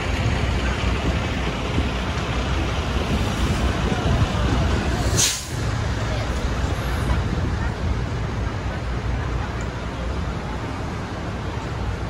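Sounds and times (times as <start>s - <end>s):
passing cars and buses rumble: 0.0s - 12.0s
brief high hiss: 5.0s - 5.6s.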